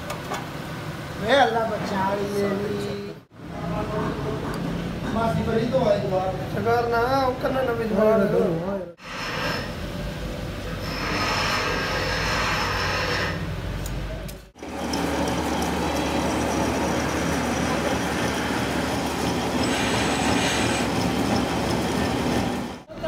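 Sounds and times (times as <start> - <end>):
metal lathe humming and grinding: 14.6 - 22.8
higher hissing noise: 19.6 - 21.1.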